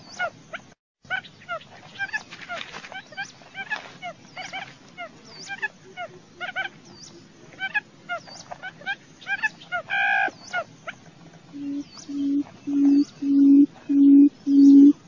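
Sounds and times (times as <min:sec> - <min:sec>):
quail chirps: 0:00.0 - 0:15.0.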